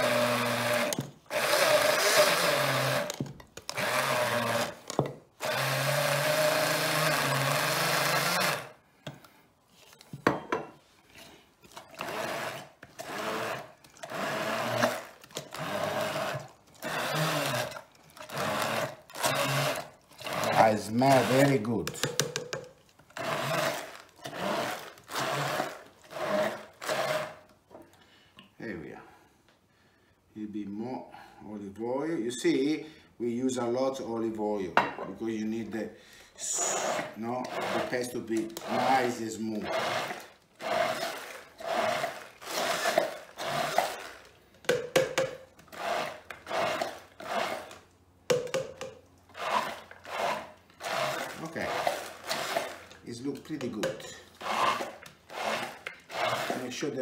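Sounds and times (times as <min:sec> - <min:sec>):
stick blender bursts: 0:00.0 - 0:08.8, 0:11.9 - 0:22.4, 0:23.1 - 0:27.5, 0:36.4 - 0:57.0.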